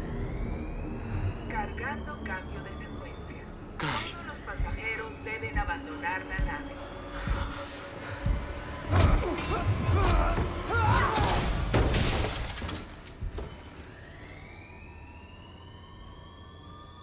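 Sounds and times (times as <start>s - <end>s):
thin rising whine: 0.0s - 8.8s, 13.5s - 17.0s
low rumble: 0.0s - 10.7s.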